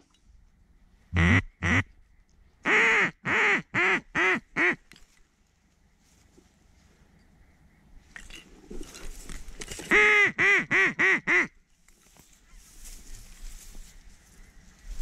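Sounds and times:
duck quacking: 1.1s - 1.9s, 2.6s - 4.8s, 9.9s - 11.6s
dry reeds rustling: 4.6s - 7.2s, 8.4s - 10.6s, 11.3s - 15.0s.

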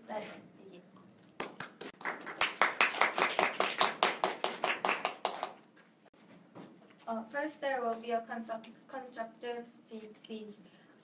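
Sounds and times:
small group applauding: 1.2s - 5.6s.

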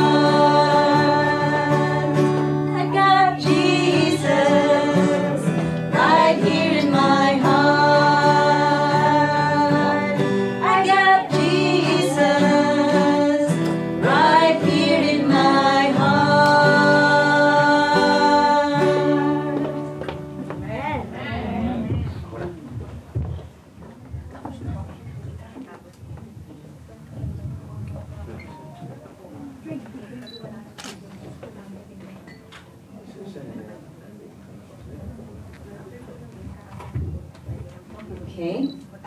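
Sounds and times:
person singing gospel song: 0.0s - 20.4s
guitar accompaniment: 0.0s - 22.1s.

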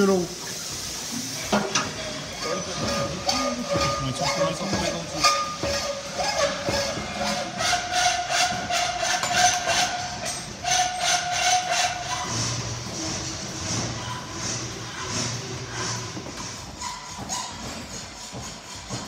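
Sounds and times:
pipe ringing: 1.5s - 12.6s
hacksaw rasping through steel pipe: 2.4s - 12.6s.

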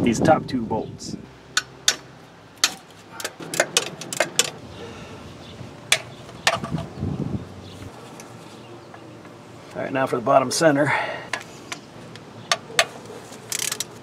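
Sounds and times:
wrench clicking on metal bolts: 2.6s - 4.6s, 12.5s - 14.0s.

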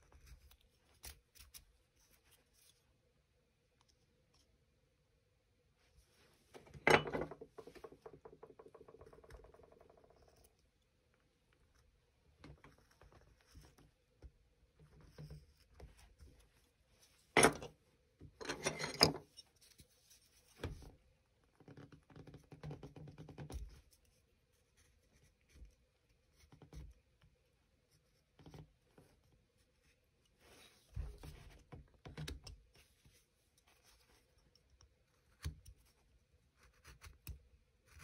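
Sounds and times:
tool clattering: 6.8s - 8.0s, 17.4s - 17.7s.

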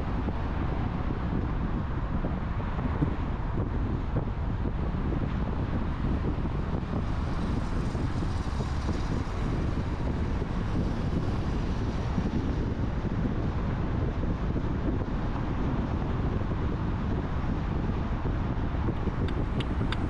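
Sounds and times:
car road and wind noise: 0.0s - 20.0s.

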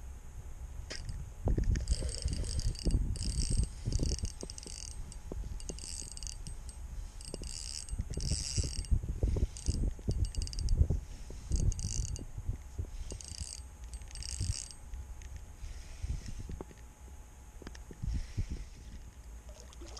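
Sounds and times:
fishing reel gears whirring: 1.7s - 16.8s.

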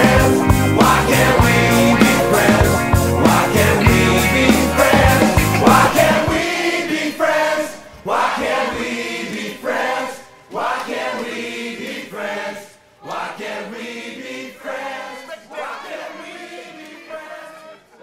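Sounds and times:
music with drums and bass: 0.0s - 6.4s
group of voices chanting: 0.0s - 18.0s.

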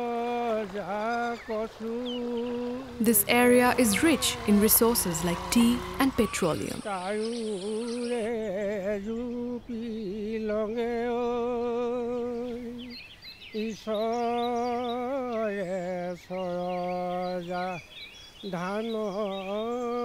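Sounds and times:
person singing alone: 0.0s - 12.9s.

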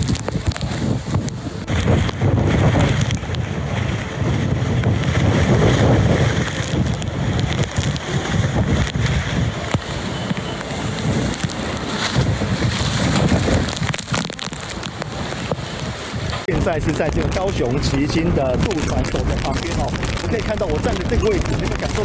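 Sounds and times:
strong wind buffeting microphone: 0.0s - 22.0s.

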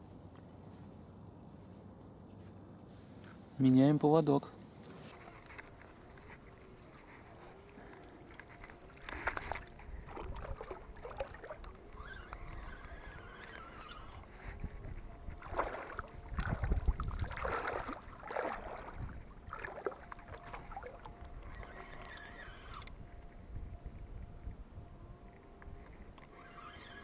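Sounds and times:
fishing reel handling noise: 11.6s - 14.4s, 21.0s - 23.0s.

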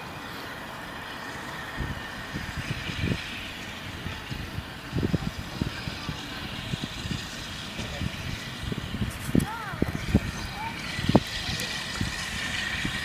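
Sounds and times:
road traffic hum: 0.0s - 13.0s
low rumbles and thumps: 1.8s - 13.0s.

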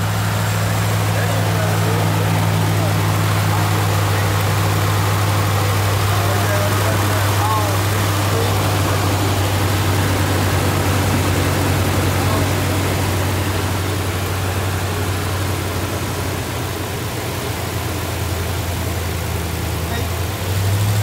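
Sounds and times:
car engine idling: 0.0s - 21.0s.

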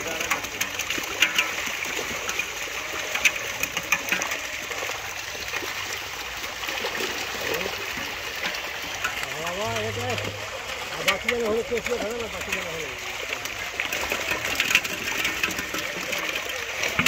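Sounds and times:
fish thrashing and splashing water: 0.0s - 17.0s.

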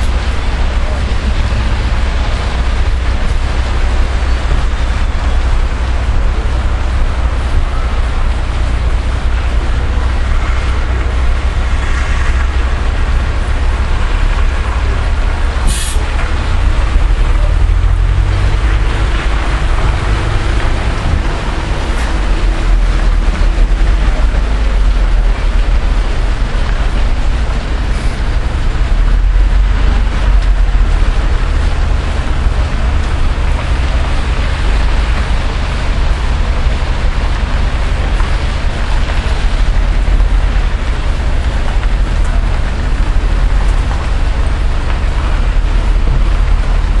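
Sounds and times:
low hum and rumble: 0.0s - 47.0s
even hiss: 15.6s - 16.0s.

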